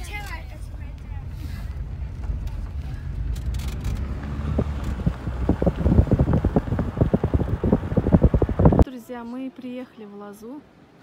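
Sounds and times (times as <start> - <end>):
car road rumble: 0.0 - 8.8
wind on microphone: 3.8 - 8.8.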